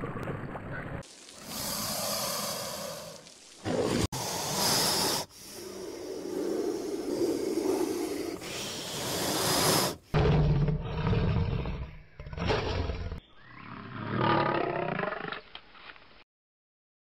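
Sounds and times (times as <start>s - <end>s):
snake hissing: 1.0s - 10.2s
lion roaring: 5.5s - 13.2s.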